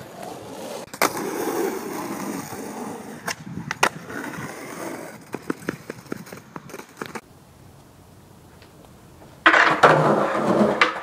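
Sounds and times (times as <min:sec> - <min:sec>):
skateboard wheels rolling on pavement: 0:00.0 - 0:11.0
skateboard sharp clacks: 0:05.2 - 0:07.2.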